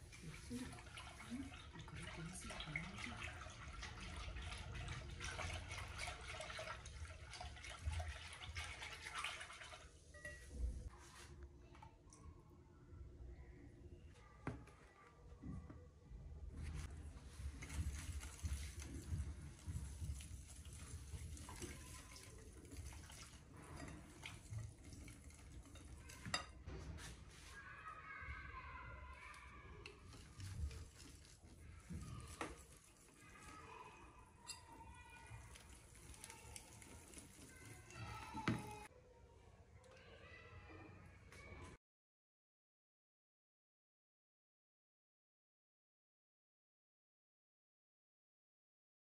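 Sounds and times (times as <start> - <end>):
whisk beating batter in a bowl: 17.3 - 26.5, 30.0 - 38.8
whisk clinking on bowl: 23.7 - 26.5.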